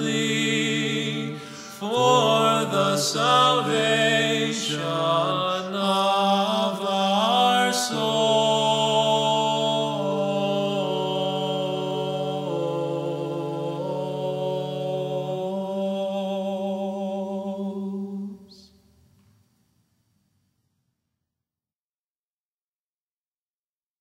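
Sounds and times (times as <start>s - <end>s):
man chanting: 0.0s - 11.3s
low held drone: 0.0s - 15.6s.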